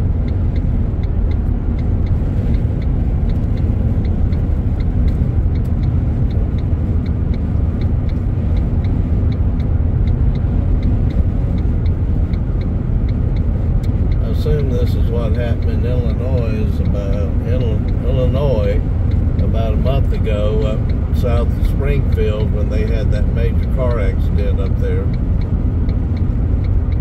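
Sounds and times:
car road and engine rumble: 0.0 - 27.0
hazard flasher relay ticking: 0.0 - 27.0.

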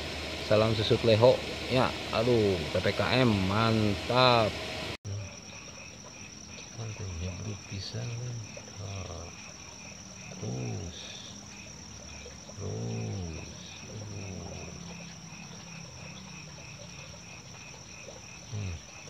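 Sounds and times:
insect trill: 0.0 - 19.0
rhythmic chirping: 0.0 - 19.0
low frog croaks: 5.0 - 19.0.

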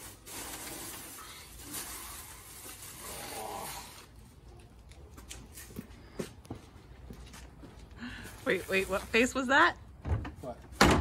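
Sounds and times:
plastic bundle rustling: 0.0 - 4.0.

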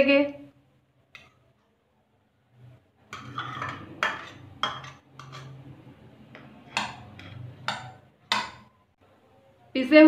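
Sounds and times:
fork scraping potato: 3.1 - 8.0.

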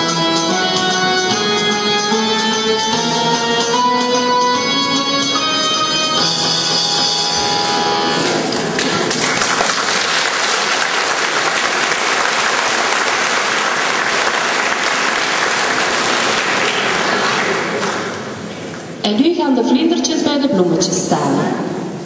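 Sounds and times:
audience applause: 8.3 - 18.8.

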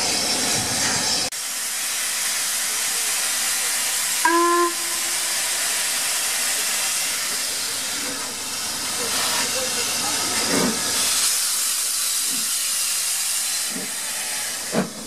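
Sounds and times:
steam hissing: 0.0 - 15.0
steam whistle blast: 4.2 - 5.9.

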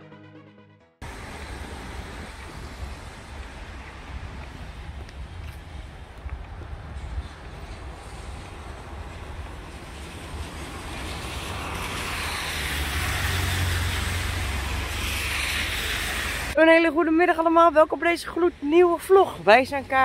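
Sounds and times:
car tyre noise: 1.0 - 16.6
traffic rumble: 1.0 - 20.0.

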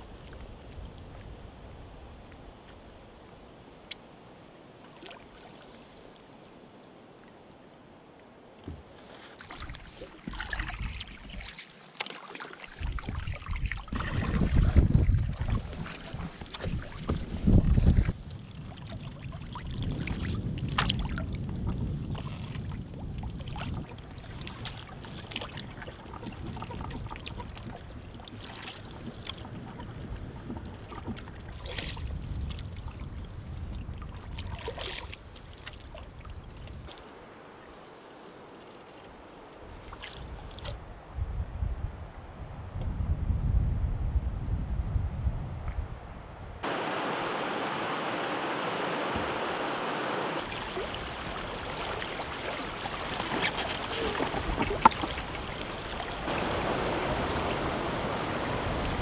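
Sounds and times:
paddle splashes: 4.8 - 6.4, 8.6 - 40.9, 46.6 - 59.0
wind buffeting microphone: 12.8 - 37.1, 39.6 - 59.0
river water rushing: 46.6 - 59.0.

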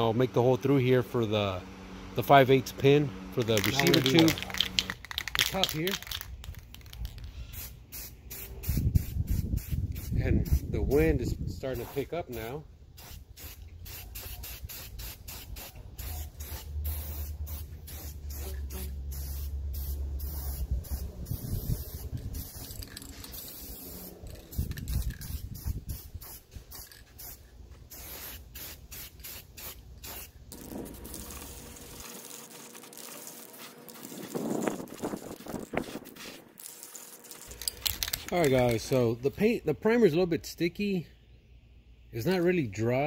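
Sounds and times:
spray can hissing bursts: 3.4 - 10.7, 12.9 - 38.4
wind rumble on microphone: 8.6 - 11.8, 20.6 - 22.6, 24.3 - 26.7, 34.1 - 36.1.

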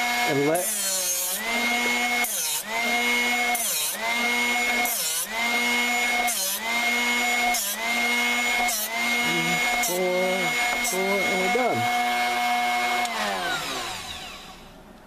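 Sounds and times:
drill bit grinding rasp: 0.0 - 14.6
sharpener motor whining: 0.0 - 14.7.

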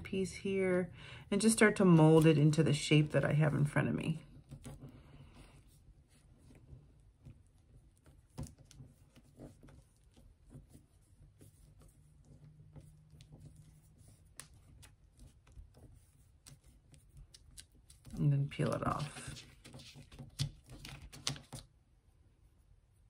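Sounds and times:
fingers tapping and rustling clay: 4.3 - 21.7.

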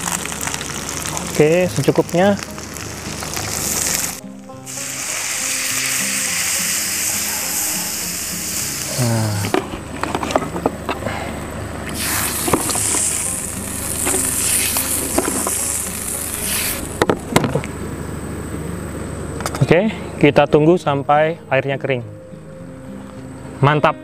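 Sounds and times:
food sizzling in a wok: 0.0 - 10.0, 11.9 - 17.8.

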